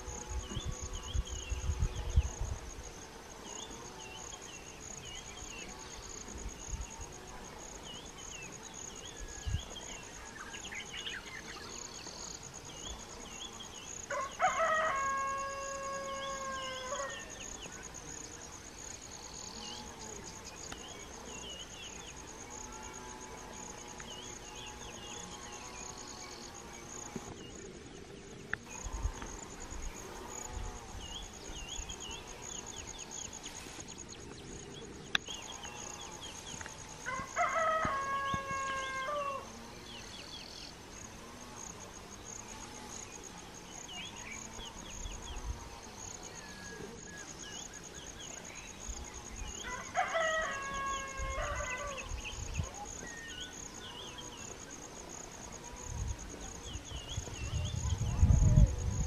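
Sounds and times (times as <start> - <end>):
insects buzzing: 0.0 - 59.0
rooster crowing: 14.1 - 17.4, 37.0 - 39.6, 49.6 - 52.1
small birds chirping: 16.6 - 37.0.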